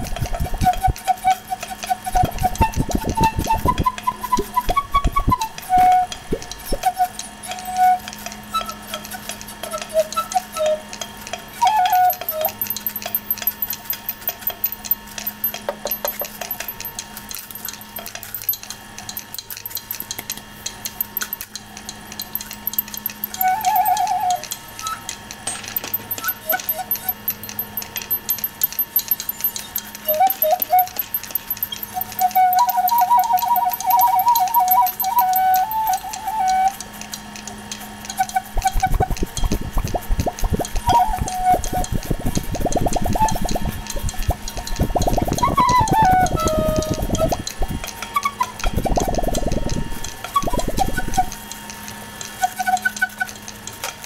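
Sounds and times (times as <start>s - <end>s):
flute-like melody: 0.0s - 14.5s, 22.7s - 25.2s, 26.0s - 37.0s, 38.0s - 51.6s, 52.3s - 53.6s
steady low hum: 33.9s - 52.6s
water-like bubbling: 38.5s - 47.8s.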